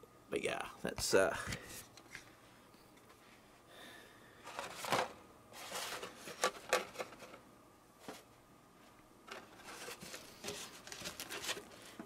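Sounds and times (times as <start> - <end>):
paper rustling: 4.5 - 7.4, 9.3 - 12.0.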